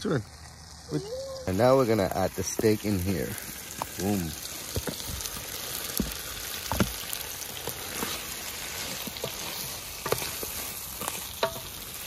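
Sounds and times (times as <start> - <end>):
meat sizzling in a pot: 0.0 - 12.0
knocks and crackles: 4.6 - 11.9.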